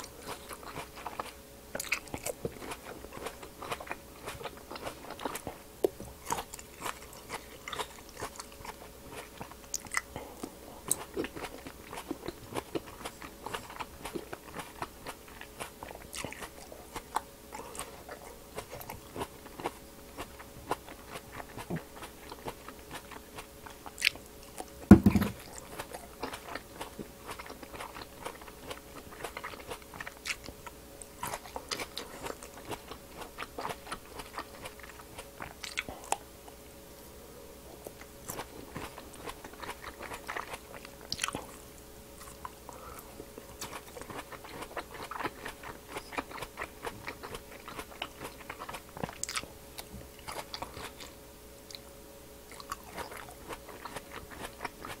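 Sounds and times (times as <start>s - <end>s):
grapes crunching while chewed: 0.0s - 55.0s
loud thump: 24.9s - 25.3s.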